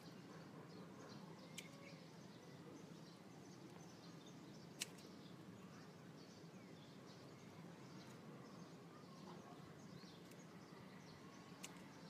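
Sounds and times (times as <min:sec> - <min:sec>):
faint bird chirps: 0:00.0 - 0:12.0
pliers snipping wire: 0:04.8 - 0:05.0, 0:11.6 - 0:11.9.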